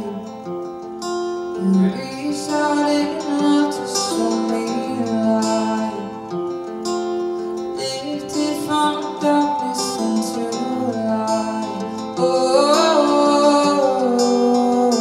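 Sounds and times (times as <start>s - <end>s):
woman singing: 0.0s - 0.8s, 1.4s - 6.4s, 7.6s - 15.0s
acoustic guitar playing: 0.0s - 15.0s.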